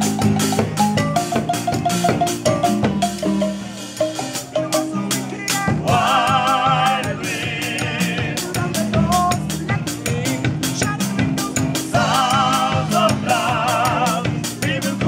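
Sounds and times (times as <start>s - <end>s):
marimbas playing: 0.0s - 15.0s
people singing together: 4.6s - 15.0s.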